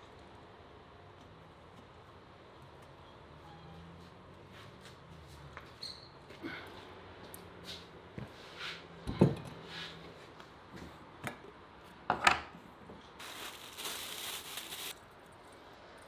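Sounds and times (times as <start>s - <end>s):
plastic bag rustling: 13.2s - 15.0s.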